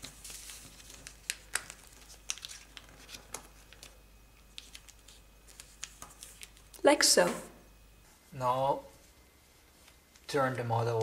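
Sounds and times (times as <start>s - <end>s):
paper rustling as it is folded: 0.0s - 6.8s
small paper clicks and crinkles: 0.0s - 6.8s.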